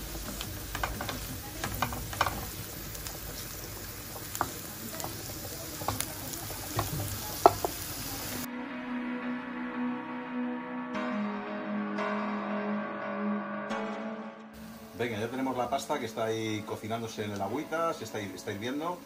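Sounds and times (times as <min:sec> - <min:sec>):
vegetables sizzling in frying pan: 0:00.0 - 0:08.5, 0:14.6 - 0:19.0
wooden spatula scraping pan: 0:00.2 - 0:03.5.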